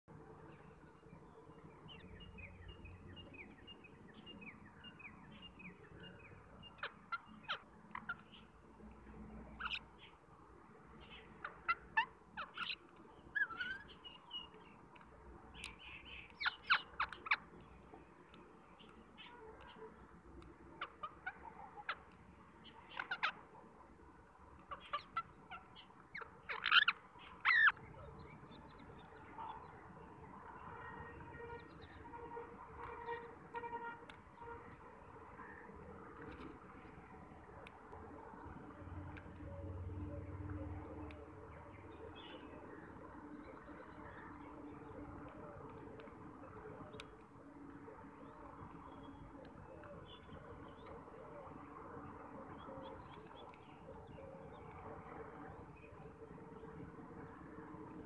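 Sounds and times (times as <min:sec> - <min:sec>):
parakeets squawking: 0:09.6 - 0:09.8, 0:11.1 - 0:12.8, 0:16.4 - 0:17.5, 0:20.8 - 0:22.0, 0:22.7 - 0:23.5, 0:24.6 - 0:27.8.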